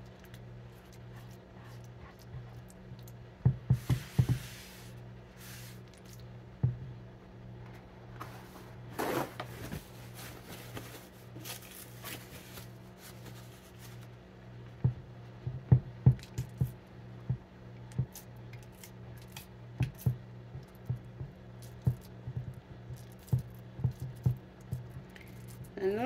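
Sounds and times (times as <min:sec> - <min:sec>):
dough tapping on wooden board: 0:03.4 - 0:04.4
paper towel rustling: 0:08.2 - 0:14.2.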